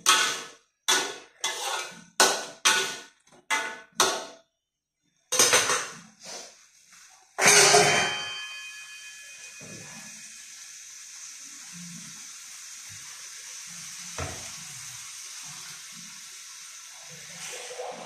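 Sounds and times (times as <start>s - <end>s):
vegetables hissing in a wok: 6.2s - 7.2s, 9.3s - 18.0s
sharp metal clang: 7.4s - 10.0s.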